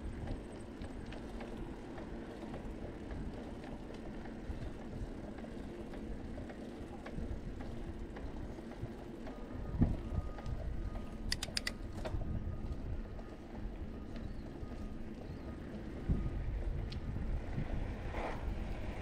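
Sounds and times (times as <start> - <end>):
bicycle rattling and clicking: 0.0 - 17.6
bicycle rolling on concrete: 0.0 - 19.0
sharp clicks: 11.2 - 11.8.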